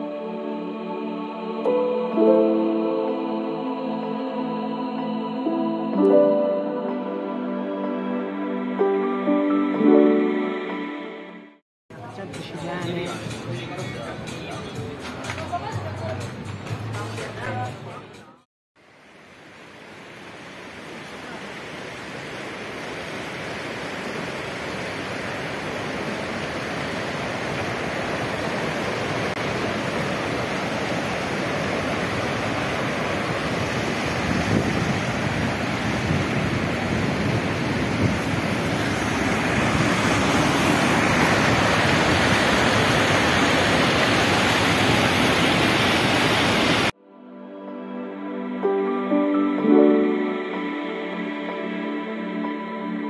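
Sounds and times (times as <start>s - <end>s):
stream rushing over rocks: 19.1s - 46.9s.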